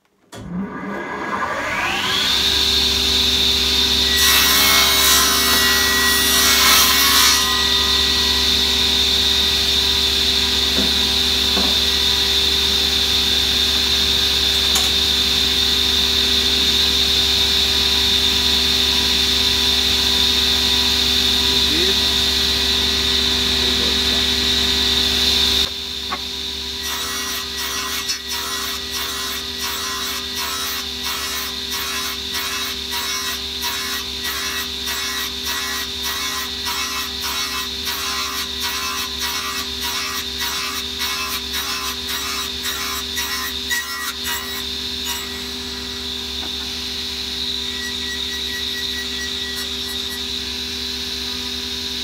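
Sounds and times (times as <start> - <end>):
table saw whining: 0.4 - 52.0
saw blade cutting wood: 4.0 - 12.6, 26.8 - 50.6.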